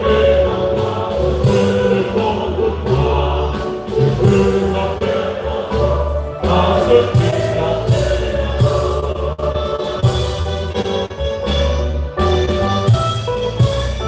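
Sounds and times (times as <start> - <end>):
choir singing a hymn: 0.0 - 10.8
instrumental accompaniment: 0.0 - 14.0.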